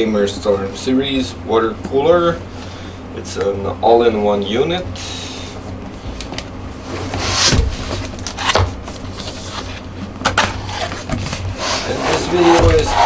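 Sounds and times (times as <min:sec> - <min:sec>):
hands rubbing cardboard: 0:10.8 - 0:13.0
scraping rush on cardboard: 0:11.6 - 0:13.0.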